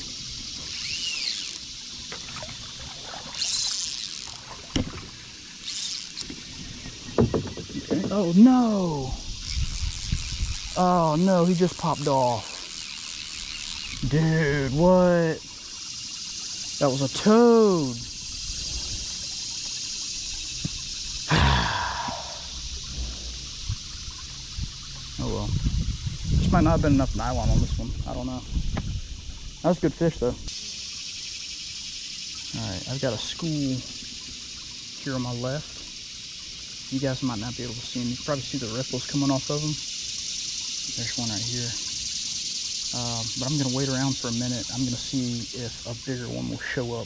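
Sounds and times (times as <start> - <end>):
high-pitched hiss: 0.0 - 47.0
water splashing and trickling: 0.0 - 47.0
man sighing heavily: 21.3 - 22.6.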